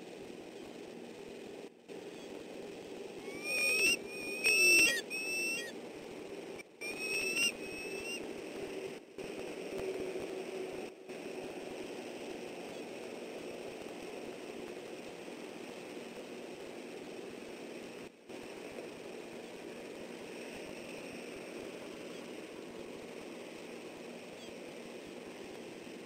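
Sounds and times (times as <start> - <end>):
steady hiss: 0.0 - 26.0
eagles chirping whistles: 3.2 - 5.7, 6.8 - 8.2.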